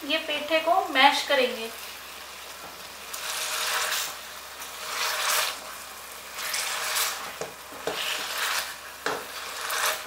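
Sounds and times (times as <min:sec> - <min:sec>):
masher mashing pumpkin: 0:06.3 - 0:10.0.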